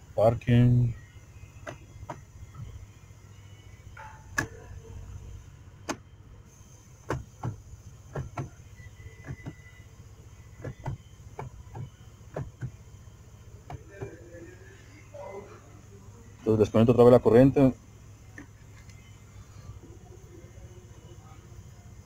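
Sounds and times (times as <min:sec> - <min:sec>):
low steady hum: 0:00.0 - 0:22.0
gear selector lever clicks: 0:04.3 - 0:04.6, 0:07.0 - 0:08.6.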